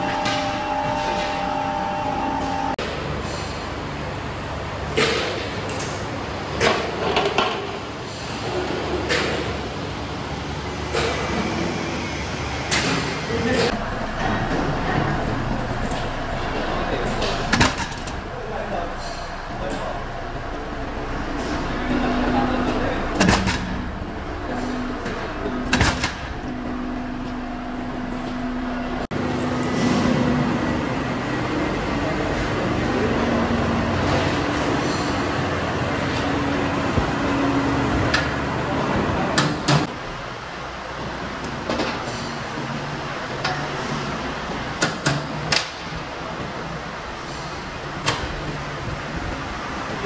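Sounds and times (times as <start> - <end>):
power press humming: 0.0 - 2.8, 13.8 - 30.2
machine noise: 0.0 - 4.0, 9.8 - 40.2
press clanking: 13.7 - 29.1.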